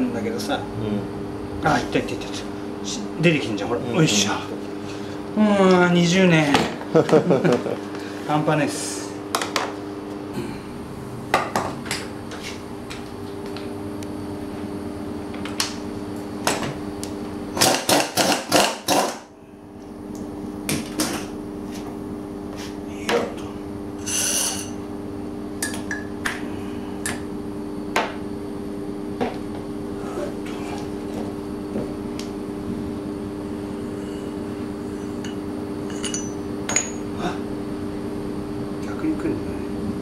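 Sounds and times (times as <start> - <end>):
steady low hum: 0.0 - 40.0
metal tools clinking: 35.9 - 37.0.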